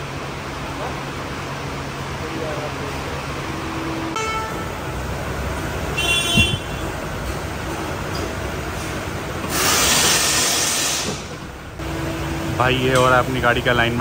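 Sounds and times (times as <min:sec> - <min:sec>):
loud air hiss: 0:09.4 - 0:11.4.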